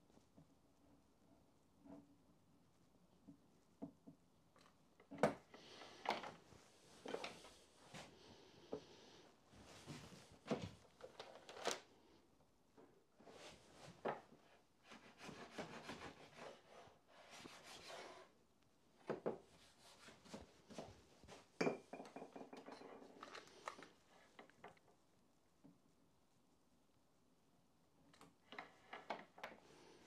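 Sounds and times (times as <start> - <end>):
rubbing and scraping wood: 13.2 - 18.4.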